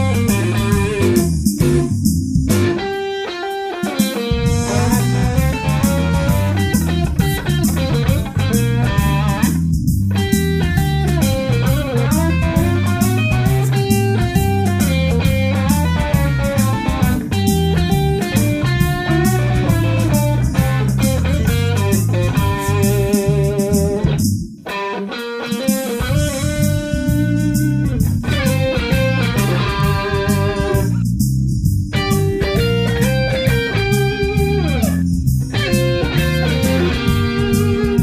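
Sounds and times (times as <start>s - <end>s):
electric guitar notes and chords: 0.0s - 38.0s.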